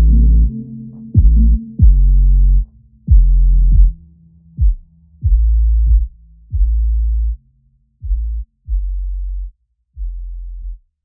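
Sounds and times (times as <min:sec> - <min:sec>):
muffled deep bass notes: 0:00.0 - 0:11.0
kick drum hits: 0:01.2 - 0:02.0, 0:04.6 - 0:06.8.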